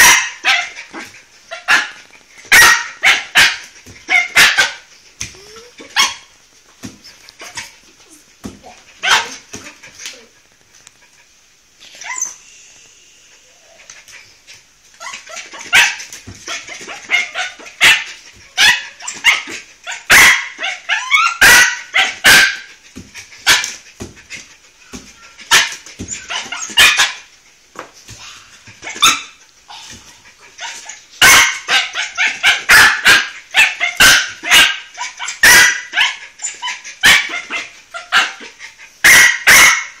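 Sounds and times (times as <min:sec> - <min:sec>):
dog whining: 0:05.3 - 0:06.1, 0:11.8 - 0:12.6, 0:13.4 - 0:15.9, 0:24.8 - 0:27.1
small dog yapping: 0:15.0 - 0:22.7, 0:24.8 - 0:27.3, 0:28.8 - 0:40.0.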